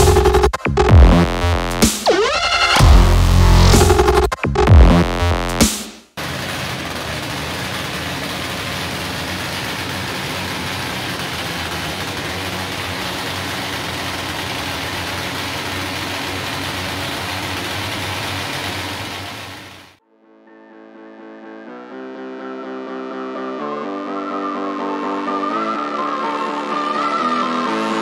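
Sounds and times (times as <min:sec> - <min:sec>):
motorcycle engines running: 0:06.2 - 0:20.0.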